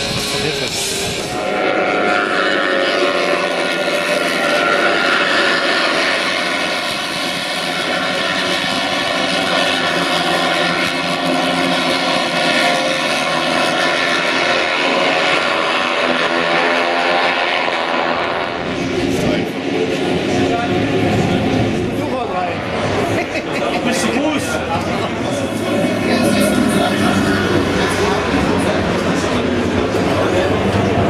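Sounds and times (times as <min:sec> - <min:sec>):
racing motorcycles at high revs: 0:00.0 - 0:18.7.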